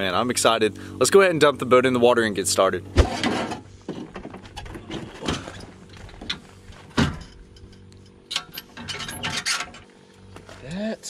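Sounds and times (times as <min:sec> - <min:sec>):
trailer hardware clanking: 0:03.0 - 0:09.9.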